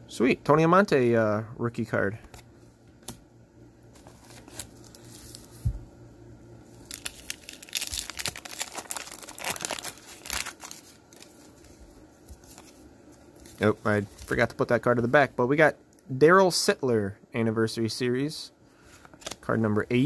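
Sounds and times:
paper wrapper tearing and crinkling: 0:03.9 - 0:05.5, 0:06.8 - 0:11.8.

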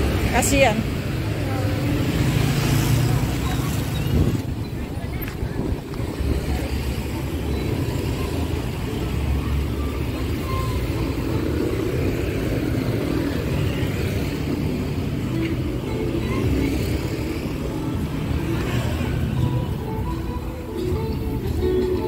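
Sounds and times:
road traffic engines: 0:00.0 - 0:22.0.

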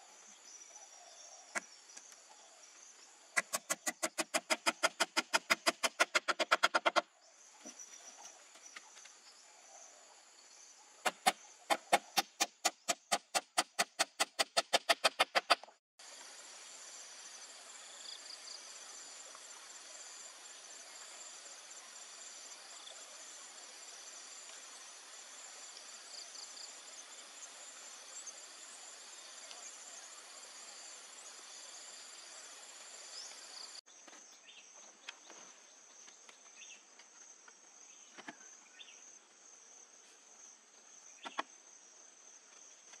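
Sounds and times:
hand tool striking bamboo and wood: 0:03.4 - 0:07.0, 0:11.1 - 0:15.7
high-pitched insect chorus: 0:16.0 - 0:34.8.

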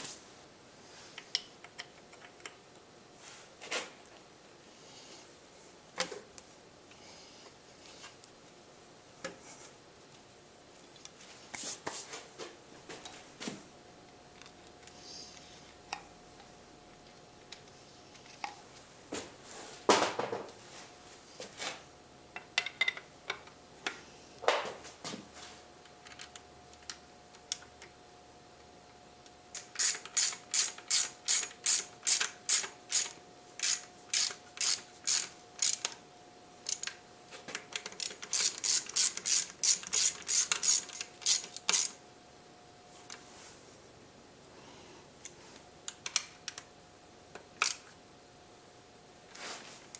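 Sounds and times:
ratchet wrench clicking: 0:29.6 - 0:36.0, 0:37.8 - 0:42.0.

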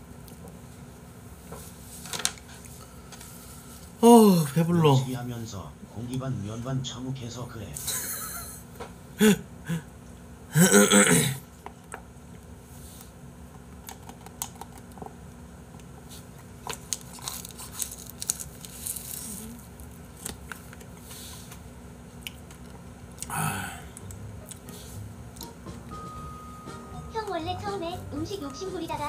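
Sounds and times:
man laughing: 0:07.8 - 0:08.6, 0:09.2 - 0:09.8
plastic packaging crinkling: 0:16.7 - 0:20.8.

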